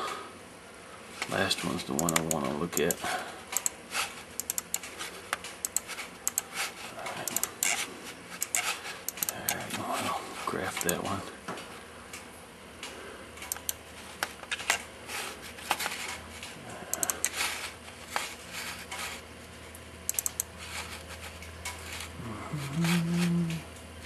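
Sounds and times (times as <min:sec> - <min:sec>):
steady low hum: 0:00.0 - 0:24.0
mouse and keyboard clicks: 0:02.0 - 0:02.9, 0:04.4 - 0:06.5, 0:07.2 - 0:07.8, 0:08.4 - 0:09.6, 0:10.8 - 0:11.0, 0:16.9 - 0:17.4, 0:20.1 - 0:20.5.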